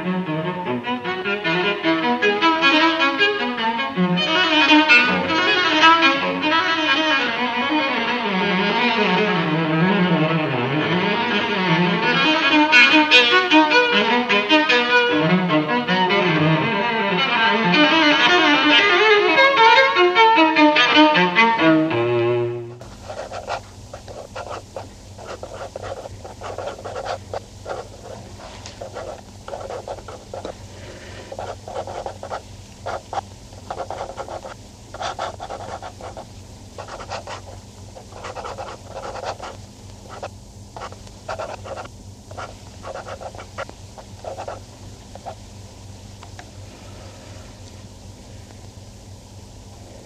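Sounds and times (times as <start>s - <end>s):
violin led string music: 0.0s - 22.7s
steady low hum: 22.4s - 50.0s.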